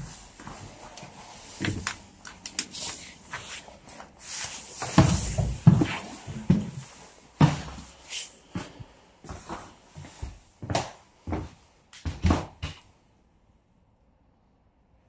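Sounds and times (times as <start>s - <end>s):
footsteps on metal bus floor: 4.8s - 8.0s.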